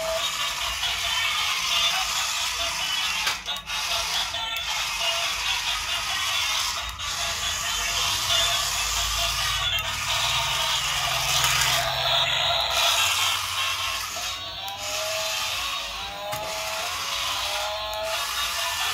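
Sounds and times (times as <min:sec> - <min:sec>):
music playing: 0:00.0 - 0:18.9
toy gearbox whirring and ratcheting: 0:00.0 - 0:18.9.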